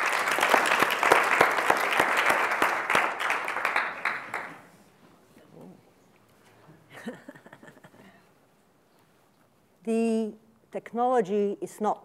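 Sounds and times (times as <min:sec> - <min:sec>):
audience applauding: 0:00.0 - 0:04.7.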